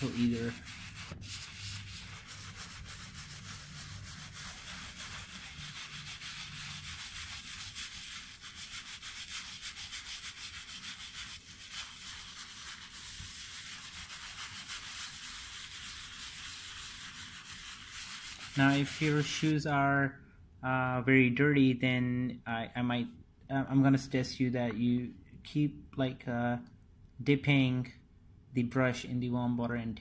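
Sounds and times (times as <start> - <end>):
brush scrubbing shoe: 0.0 - 19.5.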